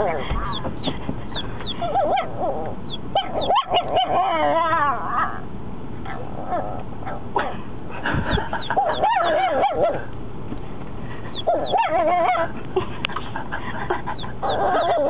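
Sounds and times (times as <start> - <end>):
puppy yipping: 0.0 - 4.8, 8.6 - 10.1, 11.3 - 12.5, 14.2 - 15.0
puppy wavering cry: 0.0 - 5.5, 8.6 - 10.1, 11.3 - 12.6, 14.1 - 15.0.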